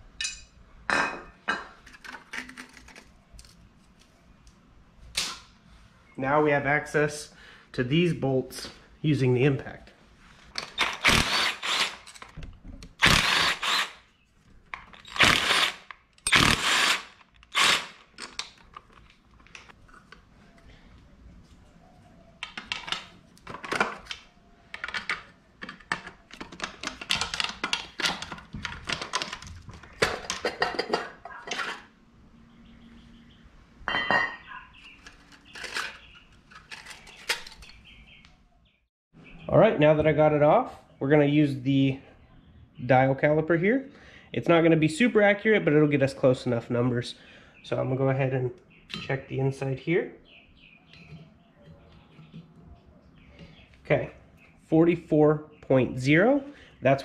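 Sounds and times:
impact wrench bursts: 10.8 - 12.1, 13.0 - 14.0, 15.1 - 18.1.

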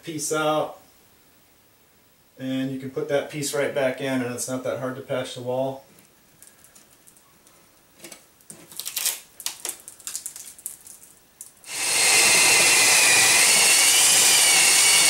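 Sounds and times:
drywall piece pulled out: 8.0 - 10.5, 11.7 - 15.0
hand saw rasping through drywall: 11.7 - 15.0
power drill boring into wood: 11.7 - 15.0.

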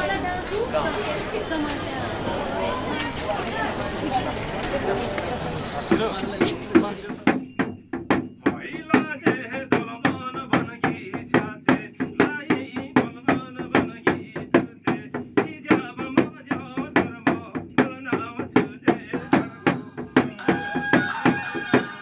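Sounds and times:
frame drum beating: 5.9 - 22.0.

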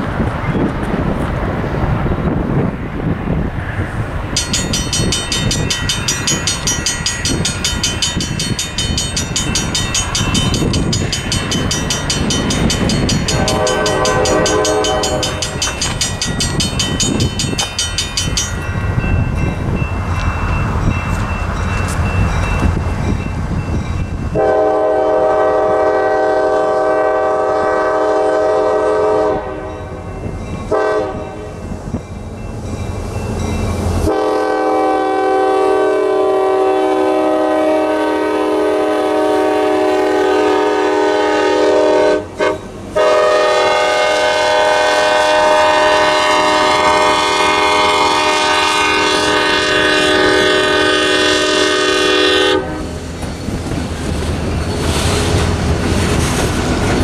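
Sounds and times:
train rolling through crossing: 0.0 - 57.0
locomotive air horn blasts: 13.2 - 15.5, 24.4 - 29.8, 30.7 - 31.5, 34.0 - 53.0.

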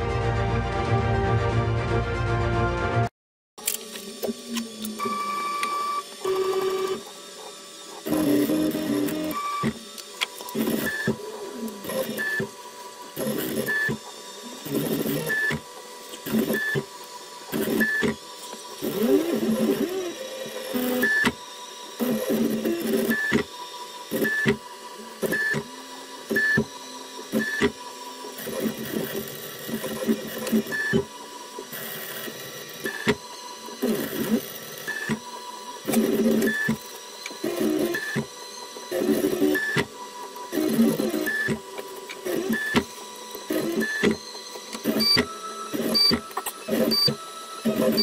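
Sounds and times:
stepper motors whining: 3.6 - 48.0.

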